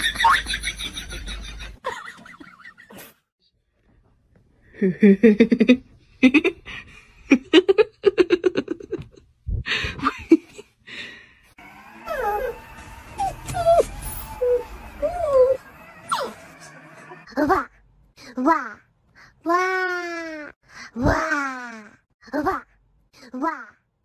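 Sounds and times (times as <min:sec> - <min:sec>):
dog whining: 0:12.0 - 0:16.6.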